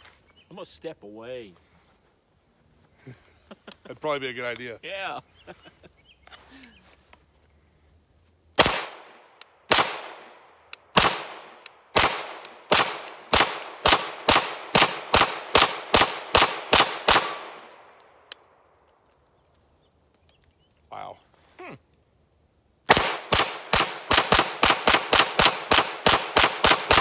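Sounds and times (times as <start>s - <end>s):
pistol shots with echo: 8.6s - 17.9s, 22.9s - 27.0s.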